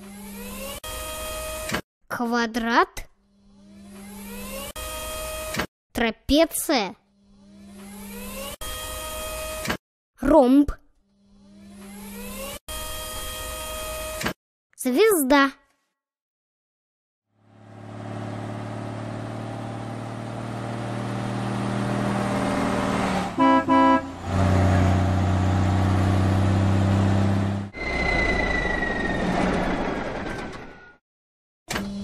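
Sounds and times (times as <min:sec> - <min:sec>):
cartoon truck engine drone: 0:17.3 - 0:31.0
truck horn honks: 0:23.3 - 0:25.1
falling whine: 0:27.8 - 0:31.0.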